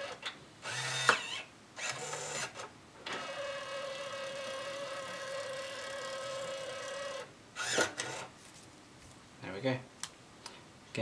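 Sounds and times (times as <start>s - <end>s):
label printer whirring: 0.0s - 8.3s.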